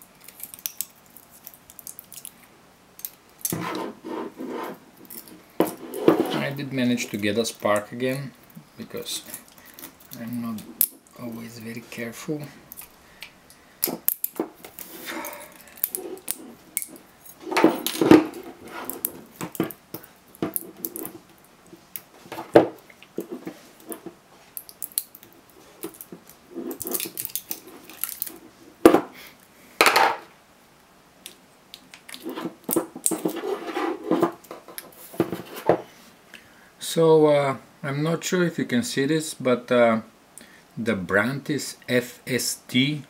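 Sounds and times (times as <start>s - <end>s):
pliers tearing metal strips: 26.7s - 28.4s.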